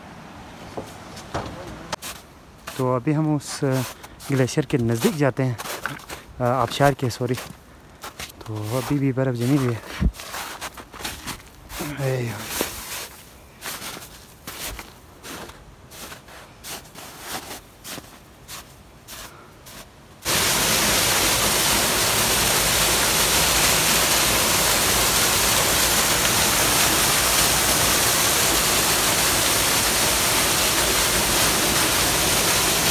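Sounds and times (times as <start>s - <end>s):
footsteps in snow: 1.9s - 19.9s
rushing waterfall under ice: 2.0s - 32.9s.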